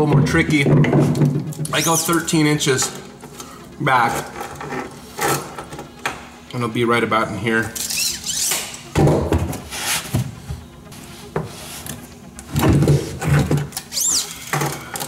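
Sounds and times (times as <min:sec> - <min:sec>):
high squeak: 0:01.7 - 0:02.2, 0:07.8 - 0:08.6, 0:13.9 - 0:14.4.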